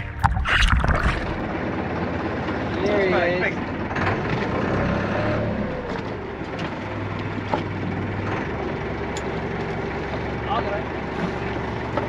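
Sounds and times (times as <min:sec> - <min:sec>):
water noise: 0:00.0 - 0:02.7
boat engine humming: 0:00.0 - 0:12.0.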